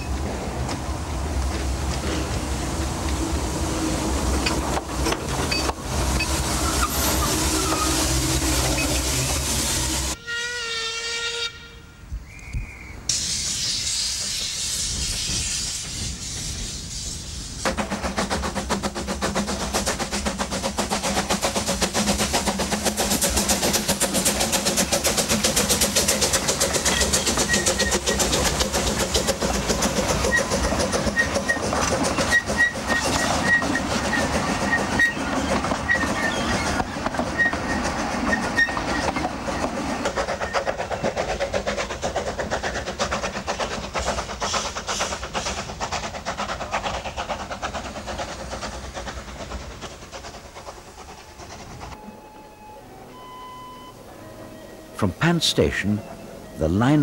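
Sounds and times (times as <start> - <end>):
steam hissing: 0.0 - 10.2, 13.1 - 52.4
steam train running with rattle: 0.0 - 10.2, 13.1 - 53.3.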